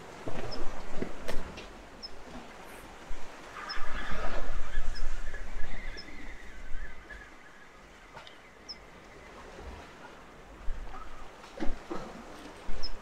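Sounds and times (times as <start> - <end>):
wind on microphone: 0.0 - 8.2.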